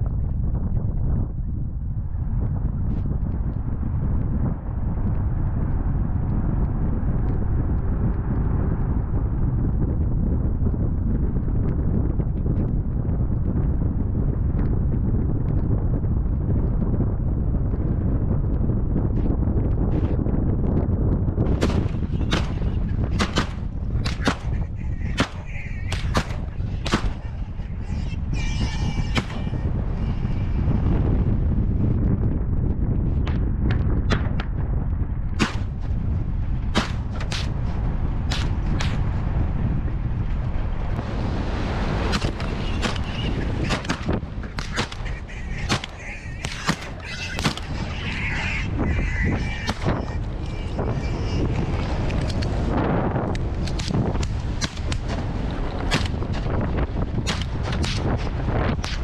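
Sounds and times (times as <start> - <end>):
vehicle and wind rumble: 0.0 - 59.0
shotgun firing: 21.6 - 24.6, 25.2 - 27.2, 35.4 - 35.8, 36.7 - 37.5, 38.3 - 39.0, 42.1 - 47.7, 55.9 - 56.2, 57.3 - 58.1.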